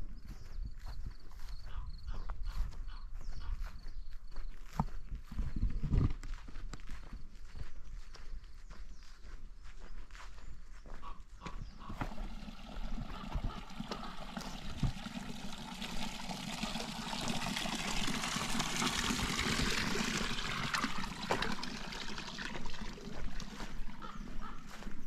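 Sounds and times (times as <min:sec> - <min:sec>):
water trickling: 0:11.8 - 0:25.0.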